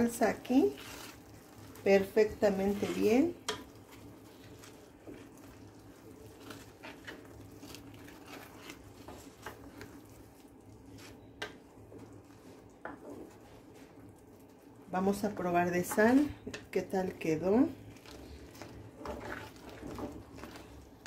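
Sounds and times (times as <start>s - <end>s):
low steady hum: 0.0s - 21.0s
wet squelching: 0.7s - 11.2s.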